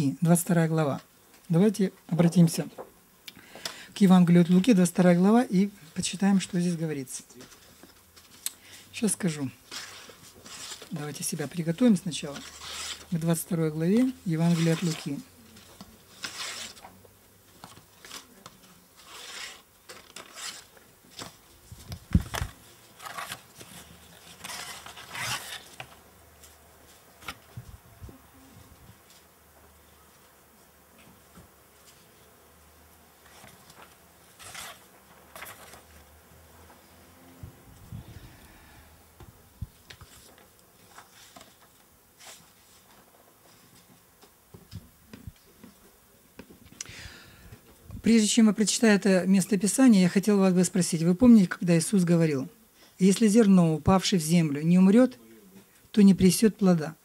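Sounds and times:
pages and papers rustling: 7.2 - 27.8, 28.6 - 32.3, 33.2 - 36.9, 39.6 - 45.8
microphone handling noise: 21.6 - 22.6.

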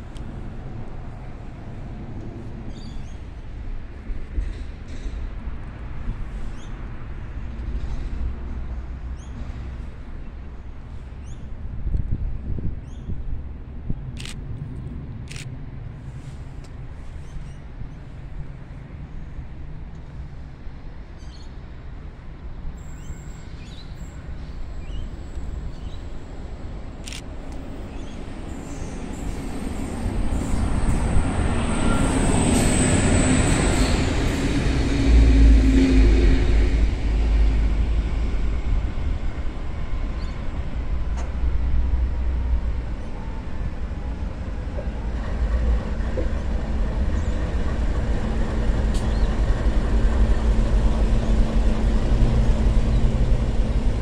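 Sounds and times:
diesel locomotive engine rumble: 0.0 - 54.0.

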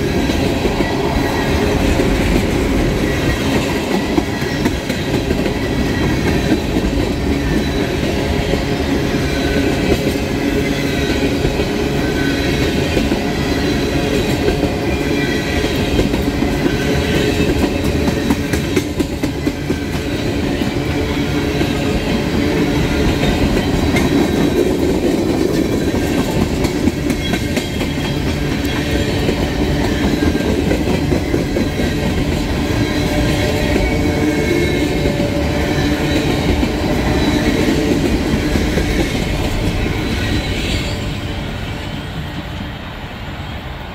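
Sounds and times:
freight train rolling past: 0.0 - 43.9
wheels clacking on rails: 0.0 - 43.9.

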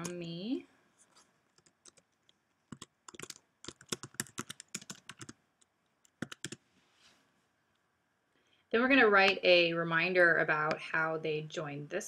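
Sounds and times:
typing on computer keyboard: 1.6 - 5.4, 6.0 - 6.6.

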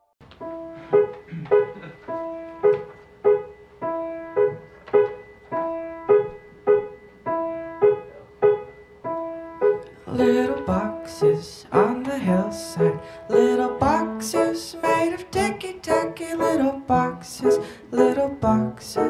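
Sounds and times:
piano repeating pattern: 0.2 - 19.0.

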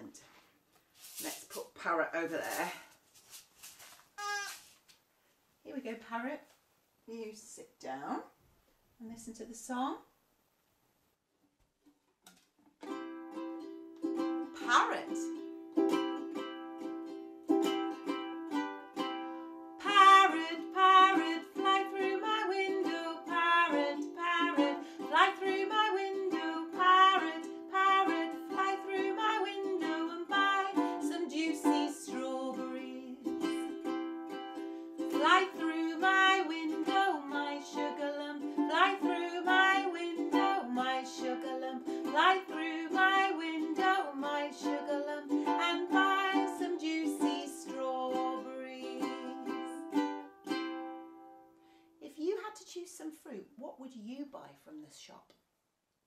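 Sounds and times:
woman singing children's song: 1.2 - 2.8, 14.4 - 16.0, 19.8 - 34.0, 35.0 - 50.1, 52.0 - 55.2
ukulele strumming: 12.3 - 51.5.

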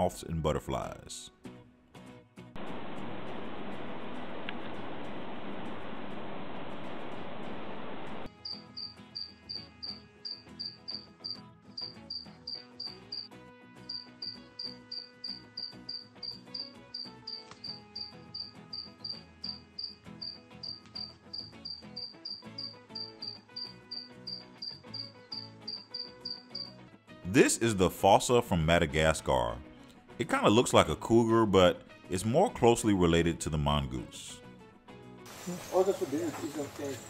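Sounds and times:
soft background music: 0.0 - 2.5, 8.2 - 37.0
cricket chirping: 8.4 - 13.3, 13.9 - 26.7
loud steady hiss: 35.3 - 37.0.

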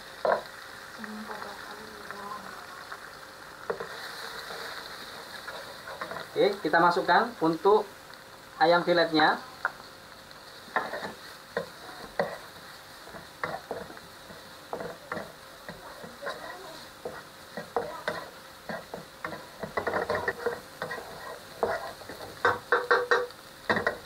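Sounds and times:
light sizzle: 0.0 - 24.0
wooden spatula scraping a pan: 3.7 - 6.6, 10.4 - 24.0.

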